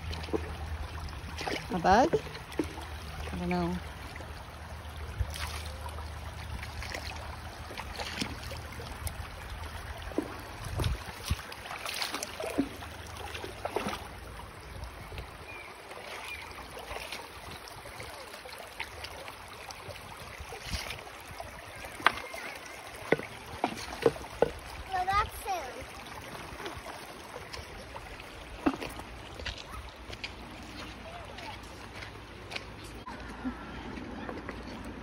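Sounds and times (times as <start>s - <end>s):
flowing river water: 0.0s - 35.0s
footsteps on river cobbles: 0.0s - 35.0s
plastic bucket being carried: 21.9s - 25.4s, 26.5s - 35.0s.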